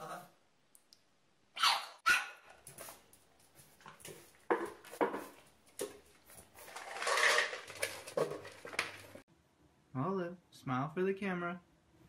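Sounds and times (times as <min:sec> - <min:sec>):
puppy barking: 0:01.6 - 0:02.5
plastic bowl and kibble clatter: 0:04.5 - 0:09.2.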